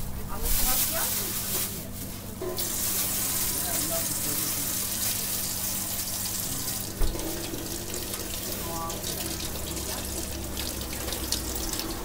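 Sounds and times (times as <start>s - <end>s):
tap water running into sink: 3.4s - 12.0s.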